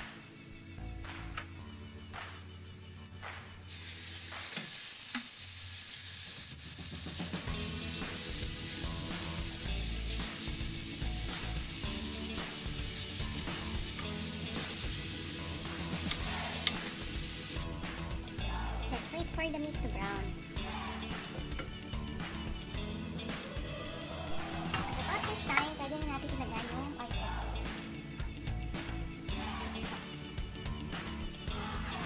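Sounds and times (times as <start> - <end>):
meat sizzling in hot oil: 0.0 - 23.3.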